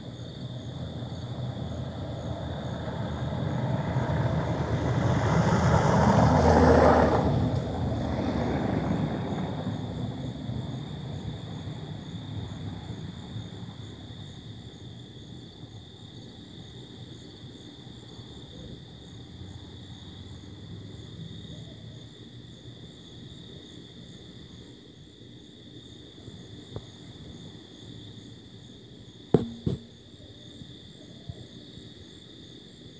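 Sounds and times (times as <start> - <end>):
night insects chirring: 0.0 - 32.9
passing vehicle rumbling: 0.6 - 14.1
sharp knocks: 29.4 - 30.0.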